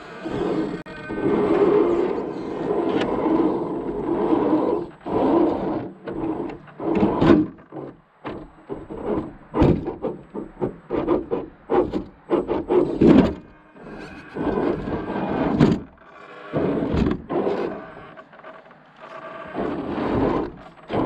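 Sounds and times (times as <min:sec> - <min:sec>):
knocks and scrapes on ground: 0:01.3 - 0:16.0, 0:19.5 - 0:21.0.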